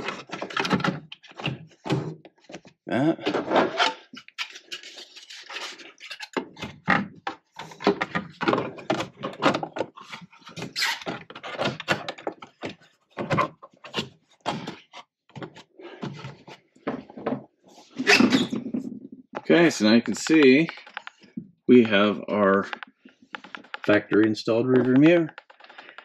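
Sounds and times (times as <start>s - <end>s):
plastic rubbing: 0.0s - 26.0s.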